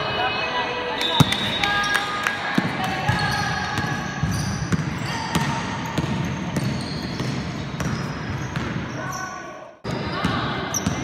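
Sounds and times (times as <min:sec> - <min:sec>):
basketball bouncing on wooden court: 0:02.6 - 0:08.9
shoes squeaking on floor: 0:06.3 - 0:09.4.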